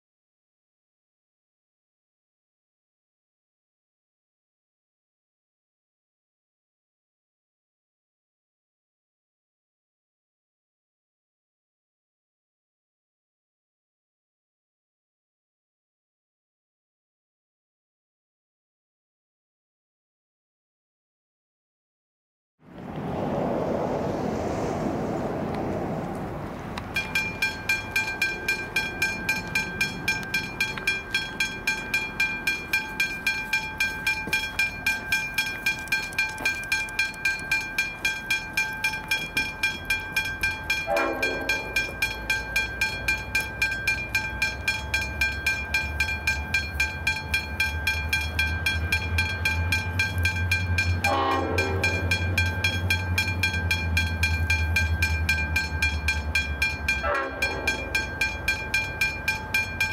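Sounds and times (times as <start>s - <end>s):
locomotive rumble: 22.6s - 59.9s
level crossing bell ringing: 26.9s - 59.9s
locomotive horn blasts: 40.7s - 42.4s, 48.1s - 55.4s, 56.1s - 59.1s.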